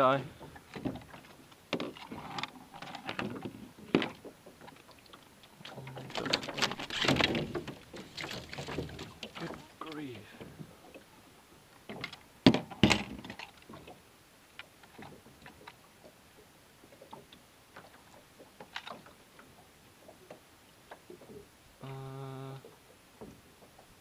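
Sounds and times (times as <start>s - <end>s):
knocks in a small boat: 0.0s - 4.8s, 5.6s - 10.8s, 11.9s - 14.0s.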